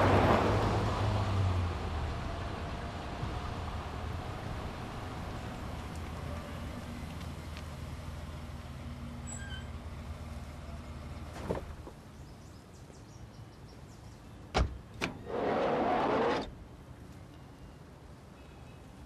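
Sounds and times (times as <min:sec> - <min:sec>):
car door shutting: 0:14.6 - 0:16.5.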